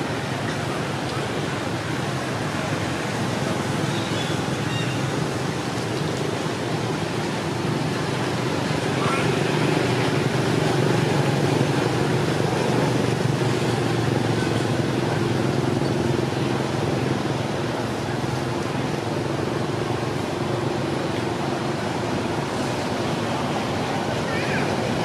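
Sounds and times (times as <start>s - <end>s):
outdoor noise: 0.0s - 25.0s.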